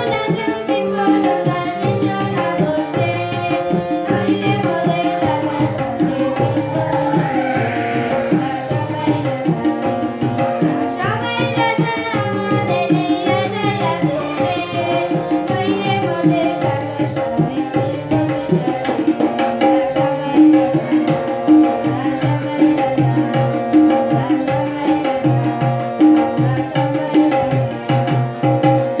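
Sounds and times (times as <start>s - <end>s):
harmonium chords: 0.0s - 29.0s
tabla drums: 0.0s - 29.0s.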